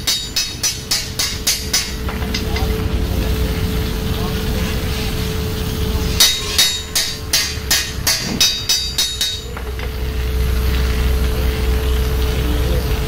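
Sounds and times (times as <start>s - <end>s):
steady hum: 0.0s - 13.0s
ringing metallic hammer taps: 6.2s - 9.7s.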